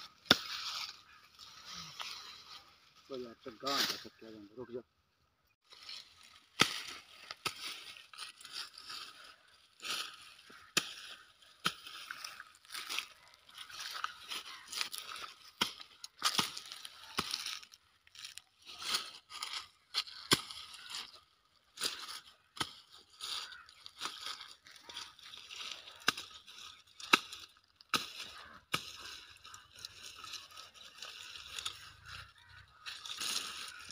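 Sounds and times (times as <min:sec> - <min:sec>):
dry stems and leaves rustling: 0:00.0 - 0:04.4, 0:05.6 - 0:33.9
chopping woody stalks: 0:00.2 - 0:01.0, 0:05.9 - 0:09.0, 0:09.8 - 0:19.1, 0:20.0 - 0:21.2, 0:21.8 - 0:32.2.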